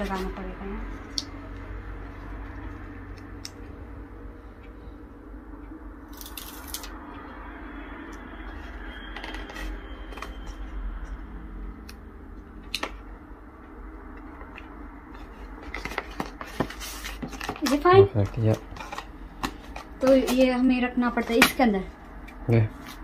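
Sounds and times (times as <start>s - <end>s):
low room hum: 0.0s - 23.0s
paper rustling: 15.2s - 20.2s.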